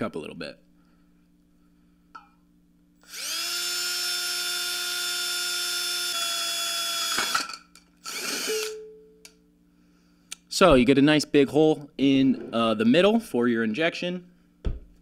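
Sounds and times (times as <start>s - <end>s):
cordless drill boring through metal: 3.0s - 7.4s, 8.0s - 8.8s.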